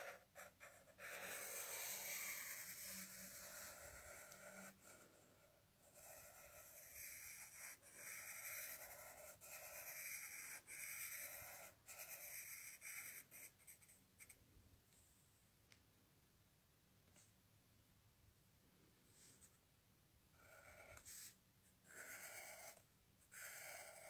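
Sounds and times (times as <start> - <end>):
pencil scratching on paper: 0.0 - 14.4, 20.4 - 24.0.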